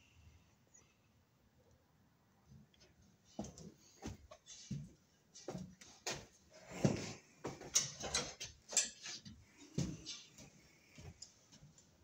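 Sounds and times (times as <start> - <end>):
tools being handled: 7.6 - 10.4.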